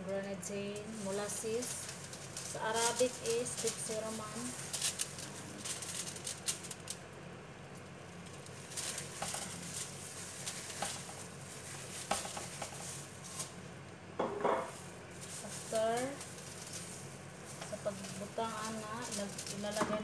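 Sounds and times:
steady low hum: 0:00.0 - 0:20.0
glass bottle taps and rustles: 0:14.2 - 0:14.7.

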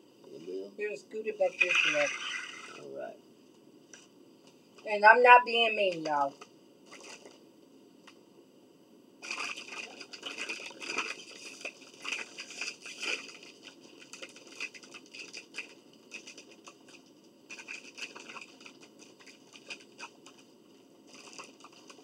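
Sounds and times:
chip bag crinkling: 0:06.8 - 0:07.4, 0:09.2 - 0:22.0
paper wrapper rustling: 0:06.8 - 0:07.4, 0:09.2 - 0:22.0.

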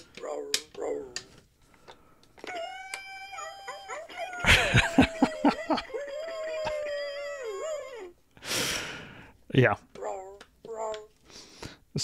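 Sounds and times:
electronic dog howls and yelps: 0:02.5 - 0:08.2.

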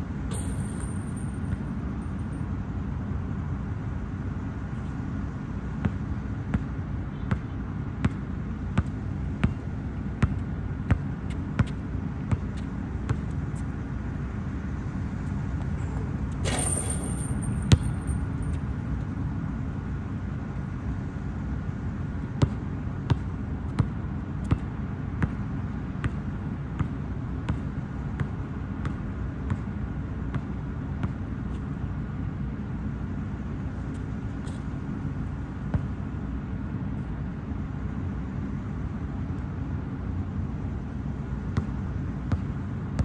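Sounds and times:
basketball bouncing on hard court: 0:08.8 - 0:09.6, 0:10.2 - 0:13.3, 0:16.4 - 0:18.2, 0:22.4 - 0:25.4, 0:26.8 - 0:27.6, 0:28.2 - 0:29.7, 0:41.6 - 0:43.0.

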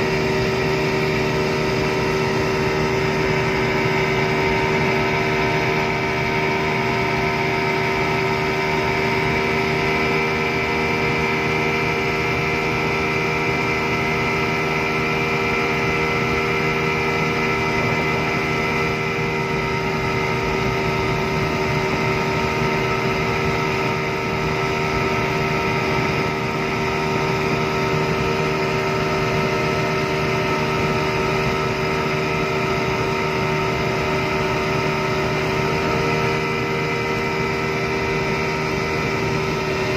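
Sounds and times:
outboard motor running: 0:00.0 - 0:39.9.

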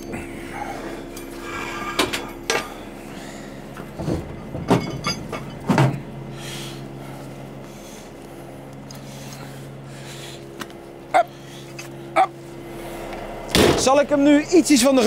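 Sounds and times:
engine hum: 0:00.0 - 0:15.0
metal clanks and knocks: 0:03.8 - 0:06.1.

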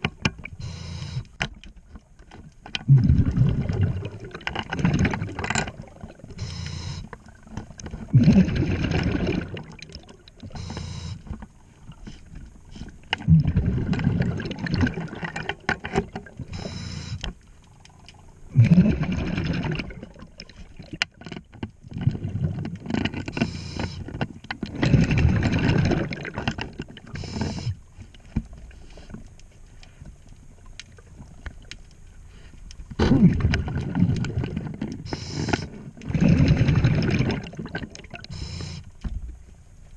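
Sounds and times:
regulator inhale hiss: 0:00.6 - 0:01.4, 0:06.4 - 0:07.1, 0:10.6 - 0:11.2, 0:16.5 - 0:17.2, 0:35.0 - 0:35.9, 0:38.3 - 0:38.9
exhaled bubbles burbling: 0:02.8 - 0:06.5, 0:07.2 - 0:10.6, 0:13.2 - 0:16.7, 0:18.1 - 0:21.1, 0:21.8 - 0:23.0, 0:24.7 - 0:27.8, 0:32.9 - 0:38.8.

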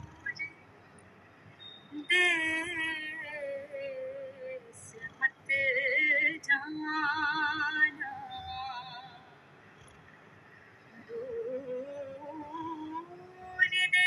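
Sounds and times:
woman singing: 0:01.9 - 0:09.3, 0:11.0 - 0:14.0.

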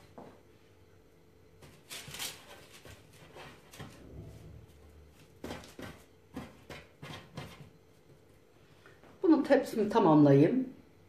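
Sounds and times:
soft rustles of baking paper: 0:01.6 - 0:05.4.

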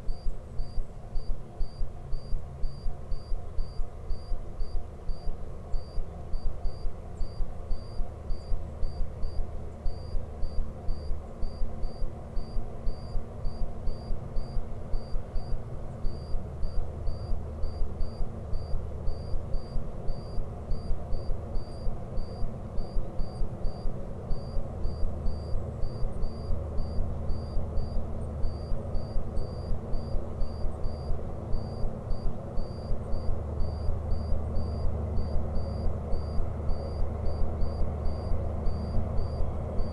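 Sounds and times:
insect chirping: 0:00.0 - 0:39.9
steady low rumble: 0:00.0 - 0:39.9.

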